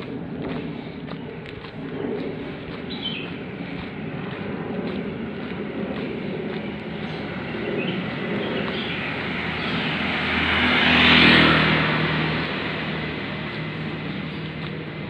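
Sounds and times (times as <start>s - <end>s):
vehicle driving past: 0.0s - 15.0s.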